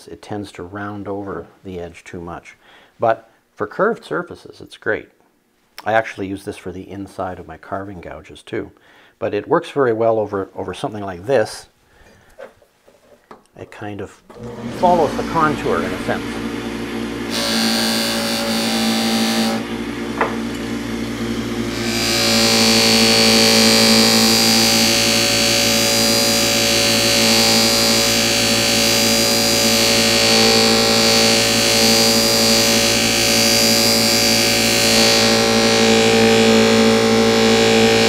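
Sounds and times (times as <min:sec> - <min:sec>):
electric motor hum: 0:14.3 - 0:38.0.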